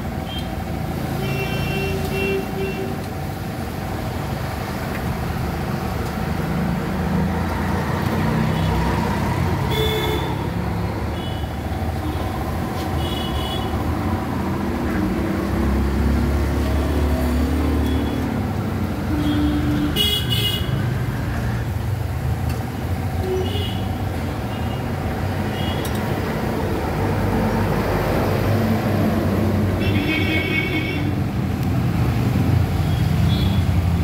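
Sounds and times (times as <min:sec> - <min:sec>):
street traffic rumbling: 0:00.0 - 0:34.0
vehicle horns honking: 0:09.7 - 0:10.5, 0:19.1 - 0:20.8.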